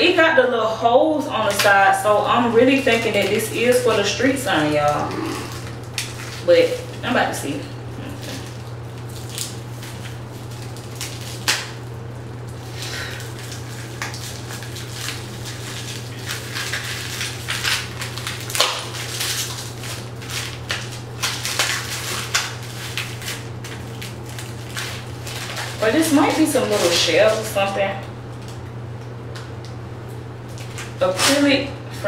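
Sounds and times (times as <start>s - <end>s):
plastic wrapping crinkling: 1.3s - 31.5s.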